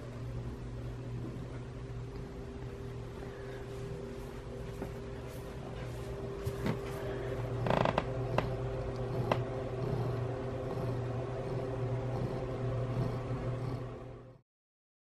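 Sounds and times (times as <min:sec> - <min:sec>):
cat purring: 0:07.6 - 0:14.2.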